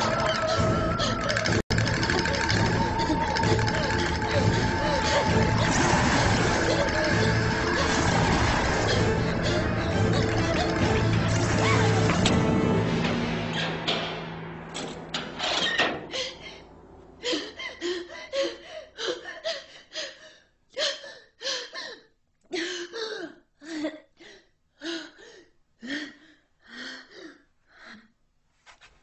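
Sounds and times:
loud sound: 0:01.7 - 0:09.8.

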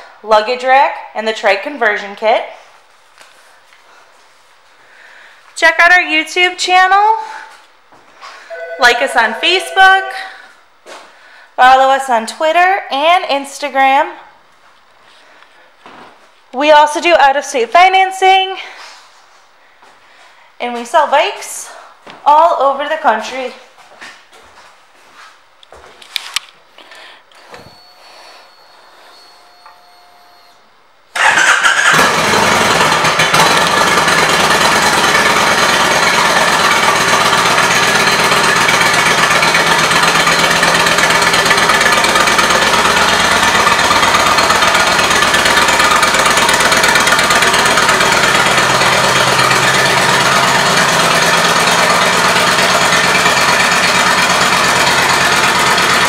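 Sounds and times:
engine starting and idling: 0:28.7 - 0:56.0.

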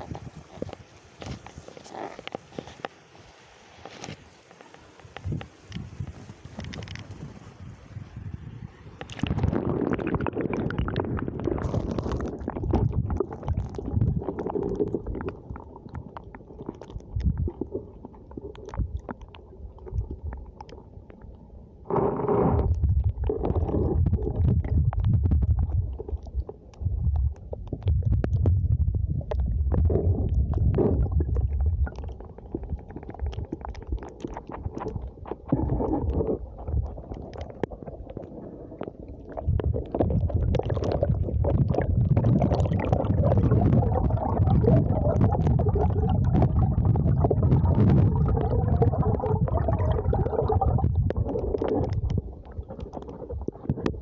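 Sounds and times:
muffled water sloshing: 0:21.8 - 0:54.0.

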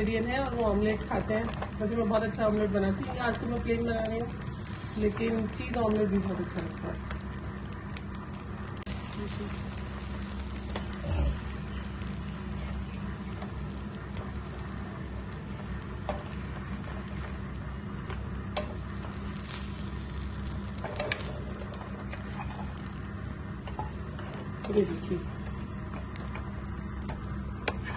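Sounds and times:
omelette sizzling in a pan: 0:00.0 - 0:27.9
wooden spatula scraping a pan: 0:27.7 - 0:27.9.

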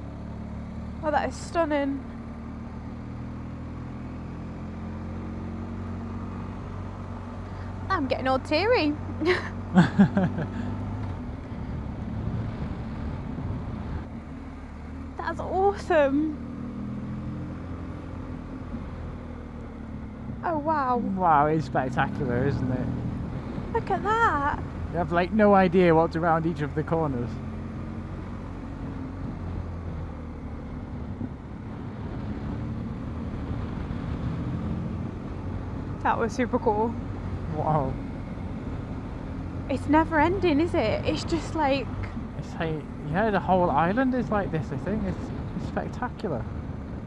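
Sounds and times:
motorcycle engine cruising: 0:00.0 - 0:47.0.

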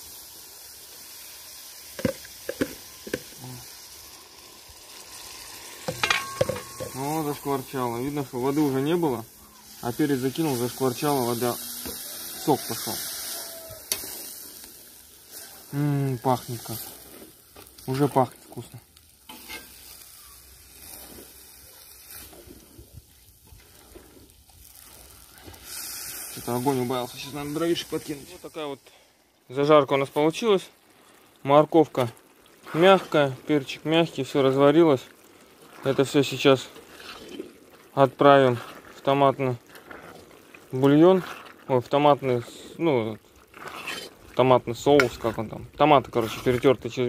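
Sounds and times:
vegetables sizzling in oil: 0:00.0 - 0:47.0
knocks against pot: 0:05.9 - 0:07.0.

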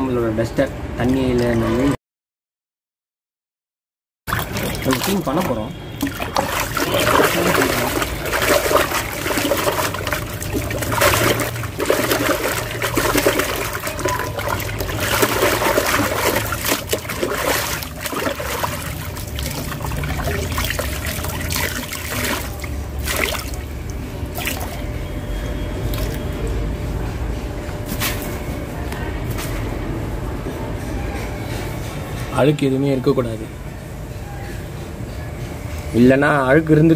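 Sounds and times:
water sloshing and trickling: 0:01.0 - 0:02.0, 0:04.3 - 0:26.9
sponge washed in water: 0:04.3 - 0:24.8.

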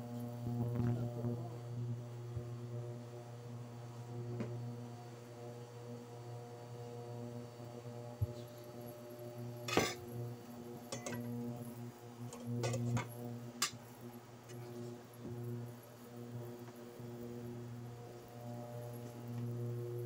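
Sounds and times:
induction cooker hum: 0:00.0 - 0:20.0
glass lid clinking on pot: 0:09.7 - 0:10.0, 0:10.9 - 0:11.3.

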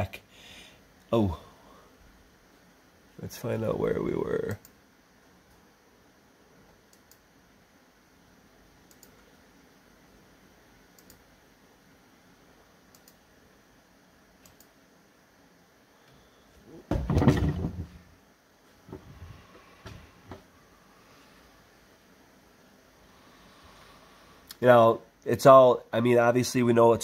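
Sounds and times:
soft clicks: 0:06.7 - 0:07.3, 0:08.8 - 0:09.2, 0:10.9 - 0:11.3, 0:12.9 - 0:13.2, 0:14.4 - 0:14.8.

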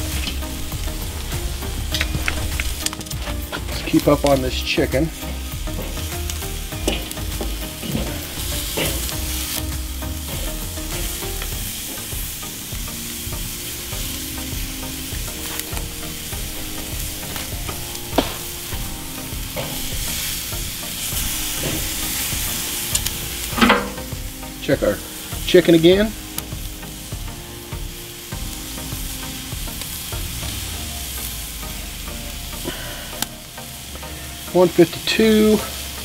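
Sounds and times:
chicken sizzling on grill: 0:00.0 - 0:36.0
metal tongs clicking on grate: 0:02.0 - 0:03.9.

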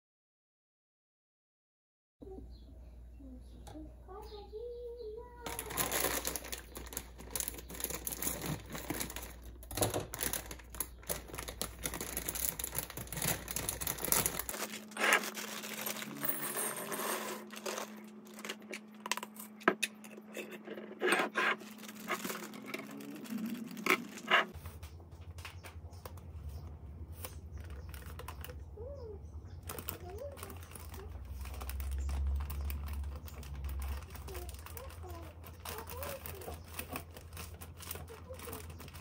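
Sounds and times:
plastic packets crinkling: 0:05.4 - 0:19.6, 0:21.3 - 0:24.6, 0:27.2 - 0:28.6, 0:29.6 - 0:39.0
dry pasta clattering into glass jar: 0:05.5 - 0:19.5.

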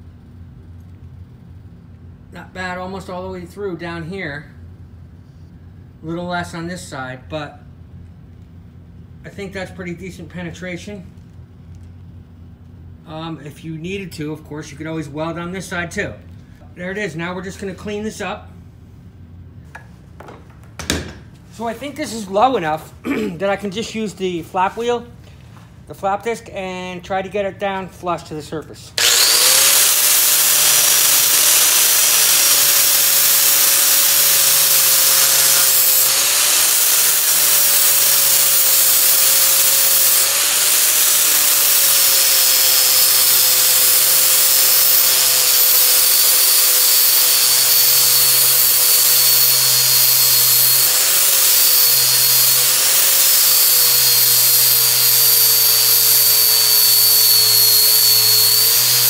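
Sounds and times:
angle grinder motor whine: 0:29.0 - 0:59.0.

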